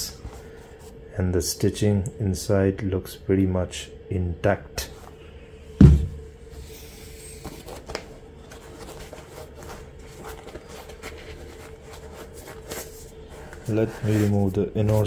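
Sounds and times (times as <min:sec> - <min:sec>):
heavy thump on desk: 0:05.8 - 0:06.2.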